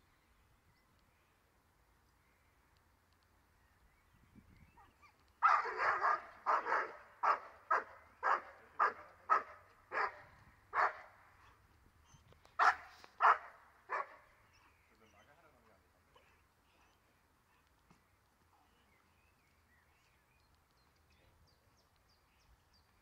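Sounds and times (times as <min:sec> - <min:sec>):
dog barking: 0:05.0 - 0:11.6, 0:12.6 - 0:14.3.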